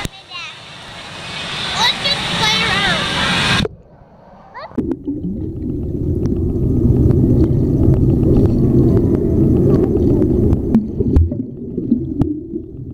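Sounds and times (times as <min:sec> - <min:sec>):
underwater churning and bubbling: 0:04.7 - 0:12.9.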